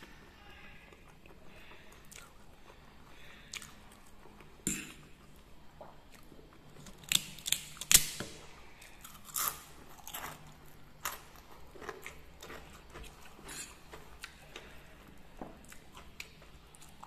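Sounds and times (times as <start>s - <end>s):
crunching while chewing: 0.1s - 17.0s
crispy snack cracking: 6.2s - 8.2s.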